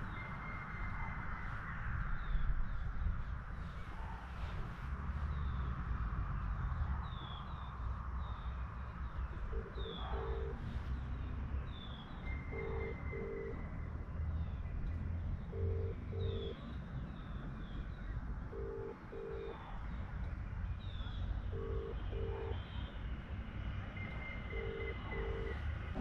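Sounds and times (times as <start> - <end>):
telephone ringback tone: 12.6 - 13.6, 15.5 - 16.4, 18.6 - 19.5, 21.6 - 22.5, 24.5 - 25.6
birds chirping: 14.3 - 20.0, 24.0 - 25.6.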